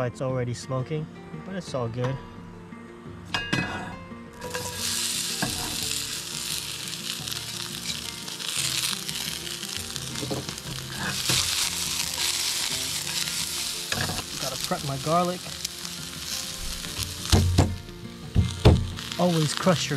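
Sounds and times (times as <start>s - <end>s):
vegetables sizzling in hot oil: 4.4s - 19.9s
spatula stirring in pan: 10.1s - 14.4s.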